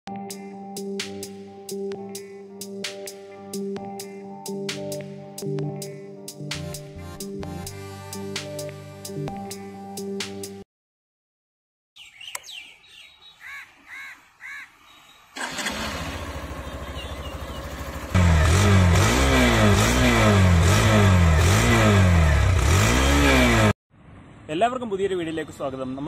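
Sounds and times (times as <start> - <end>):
motorcycle engine idling: 15.4 - 18.5
electric starter whirring: 15.4 - 23.5.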